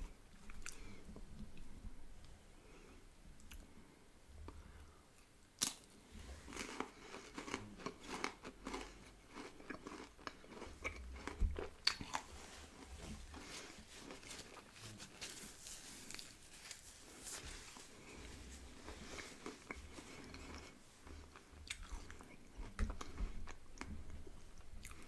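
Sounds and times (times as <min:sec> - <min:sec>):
chewing and crunching: 0:05.6 - 0:17.2, 0:17.8 - 0:25.0.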